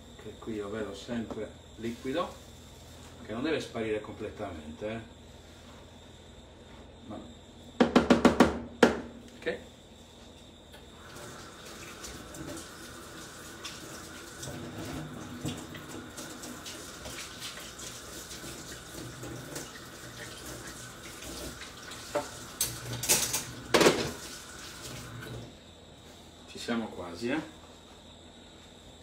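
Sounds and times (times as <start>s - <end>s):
loud knocks: 7.8s - 9.1s
kitchen tap running: 10.9s - 25.5s.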